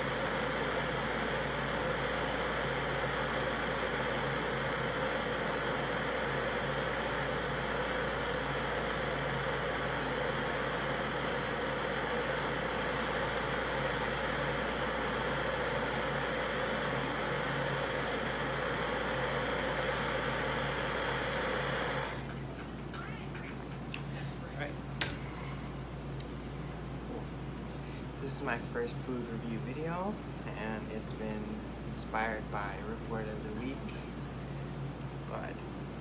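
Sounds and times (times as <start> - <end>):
torch flame hissing: 0.0 - 22.2.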